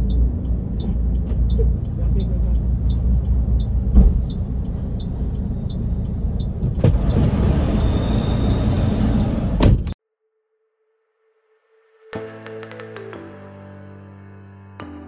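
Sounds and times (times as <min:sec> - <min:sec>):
light ticking: 0:00.0 - 0:06.7
outside traffic noise: 0:00.0 - 0:10.0
car door shutting: 0:03.9 - 0:04.4, 0:06.6 - 0:10.0.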